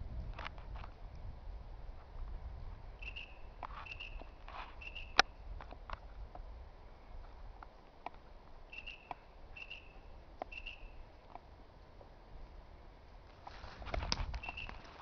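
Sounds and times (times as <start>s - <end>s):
short high chirps: 3.0s - 5.2s, 8.7s - 11.0s, 14.4s - 14.8s
twigs and dry leaves snapping: 13.3s - 15.0s.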